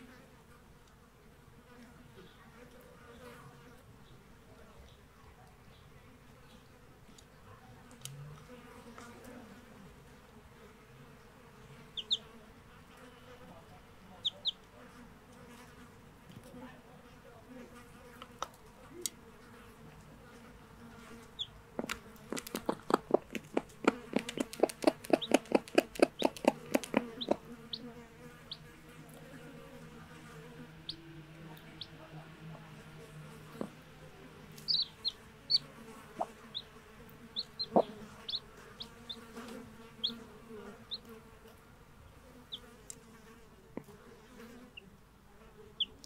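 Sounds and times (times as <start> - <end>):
faint buzzing hum: 0.0 - 46.0
chicks peeping: 11.9 - 12.3, 14.2 - 14.7, 21.2 - 29.2, 30.7 - 41.1, 45.8 - 46.0
rapid sharp taps: 21.8 - 27.4.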